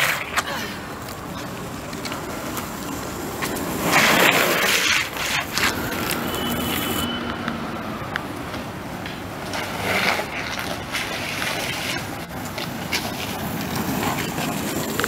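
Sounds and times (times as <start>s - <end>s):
longboard wheels rolling on asphalt: 0.0s - 15.0s
longboard sliding scrape: 2.1s - 7.4s, 9.4s - 15.0s.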